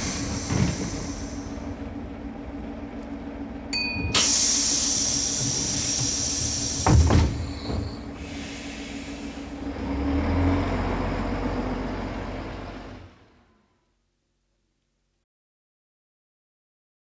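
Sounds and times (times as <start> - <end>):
air hiss: 0.0 - 1.6, 4.2 - 9.6
train low rumble: 0.0 - 14.9
loud clunk with falling tone: 6.8 - 8.0.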